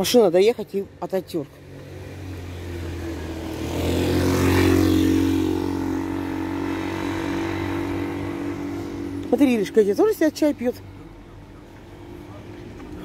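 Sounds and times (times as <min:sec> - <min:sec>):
vehicle engine running: 0:01.8 - 0:13.0.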